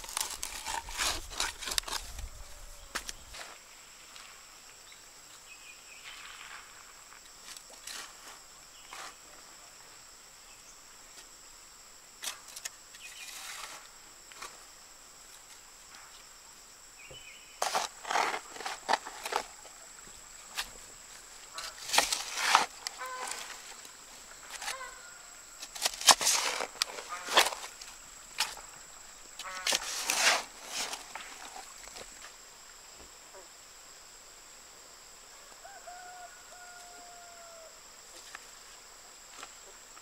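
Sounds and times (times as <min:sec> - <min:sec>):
high insect buzz: 0:00.0 - 0:40.0
digging tool striking clay soil: 0:17.6 - 0:19.5, 0:21.6 - 0:23.5, 0:25.6 - 0:27.7.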